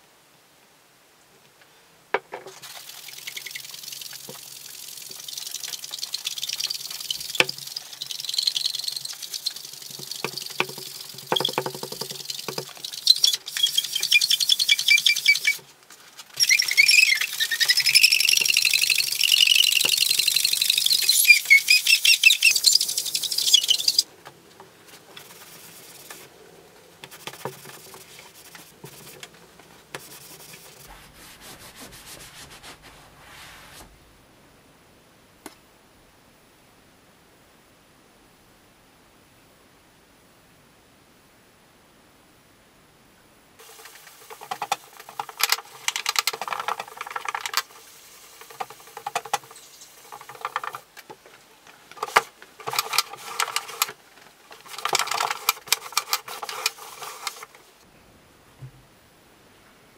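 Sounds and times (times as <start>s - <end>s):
sponge scrubbing wet plastic: 2.5s - 24.1s, 24.9s - 26.3s, 27.0s - 34.0s, 51.9s - 57.6s
high wavering squeaks: 3.0s - 15.6s, 16.3s - 24.1s.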